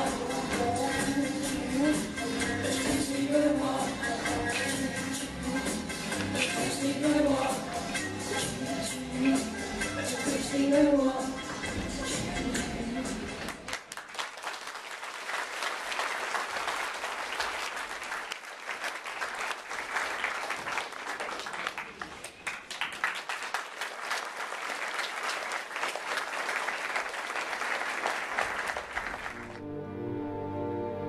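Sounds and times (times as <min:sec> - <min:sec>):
audience applauding: 0:13.5 - 0:29.6.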